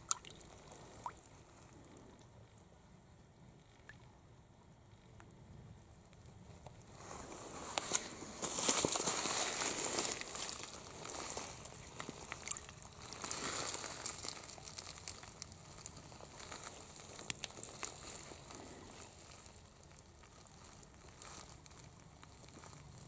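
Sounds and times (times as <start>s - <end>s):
gravel crunching and clicking: 6.1s - 23.0s.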